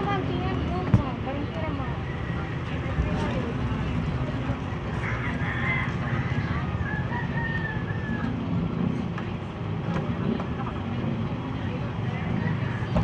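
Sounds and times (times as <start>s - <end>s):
street traffic rumble: 0.0s - 13.0s
rooster crowing: 5.0s - 8.4s.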